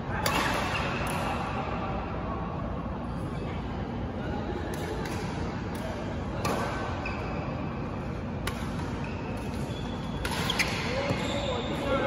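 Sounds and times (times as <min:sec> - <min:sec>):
shoes squeaking on court floor: 0:08.9 - 0:12.0.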